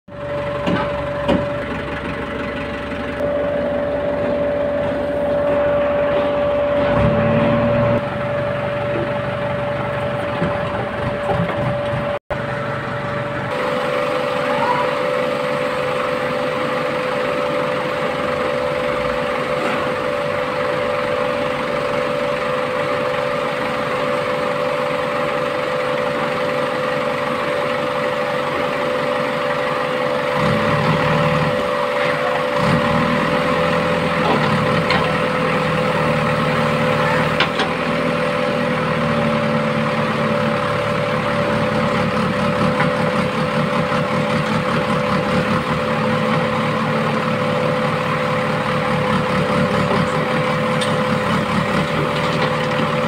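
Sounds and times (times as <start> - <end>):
diesel engine running: 0.1 - 53.0
high hum: 3.2 - 15.5.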